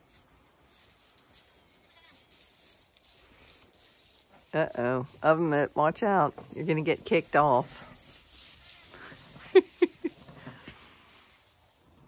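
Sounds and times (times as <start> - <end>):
animals rustling on straw: 0.0 - 12.0
faint hiss: 7.8 - 12.0.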